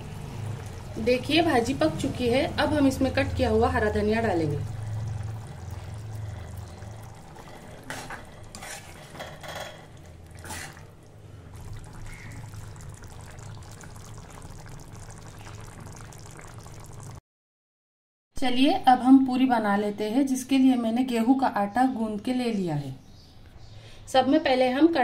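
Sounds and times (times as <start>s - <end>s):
spoon stirring wet food: 4.2s - 16.4s.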